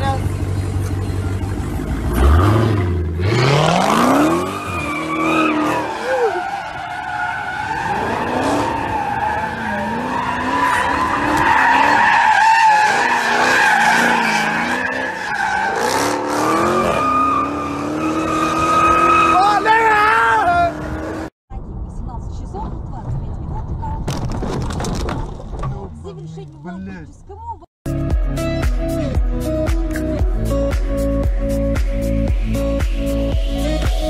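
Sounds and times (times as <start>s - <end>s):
car engine revving: 0.0s - 21.3s.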